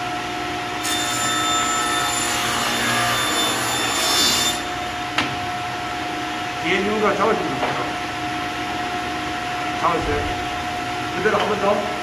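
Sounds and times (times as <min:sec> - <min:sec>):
table saw cutting wood: 0:00.8 - 0:04.9.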